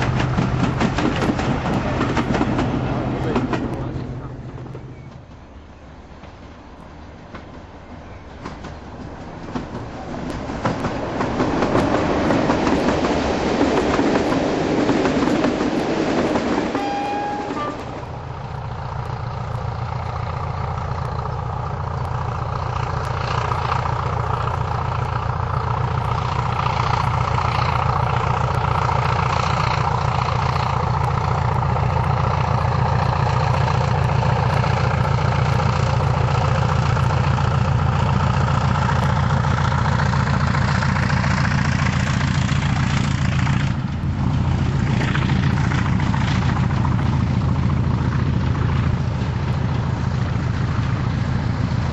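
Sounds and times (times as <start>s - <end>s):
diesel locomotive engine drone: 0.0s - 51.9s
diesel train approaching: 0.0s - 51.9s
short high tone: 16.8s - 17.9s.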